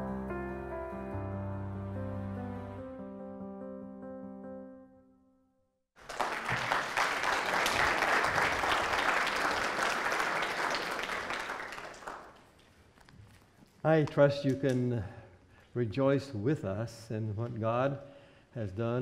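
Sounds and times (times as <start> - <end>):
congregation applauding: 6.0 - 12.6.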